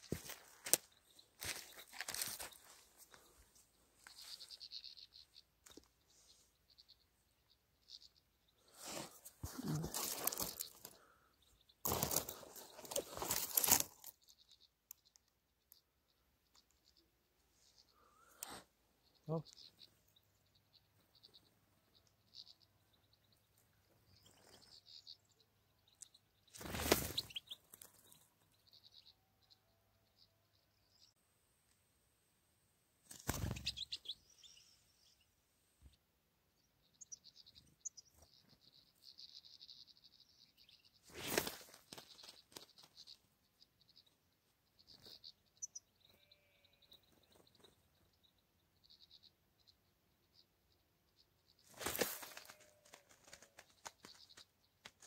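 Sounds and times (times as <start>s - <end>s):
rustling in dry grass and twigs: 0.0s - 6.9s, 7.9s - 11.2s, 11.8s - 15.0s, 26.5s - 28.3s, 41.0s - 43.2s, 51.6s - 55.0s
high bird chirps: 4.1s - 31.2s, 33.3s - 35.2s, 36.6s - 54.6s.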